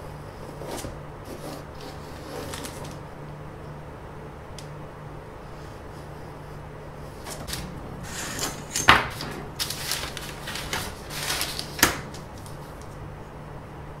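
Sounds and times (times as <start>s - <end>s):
paper rustling: 0.5s - 3.0s, 7.1s - 13.0s.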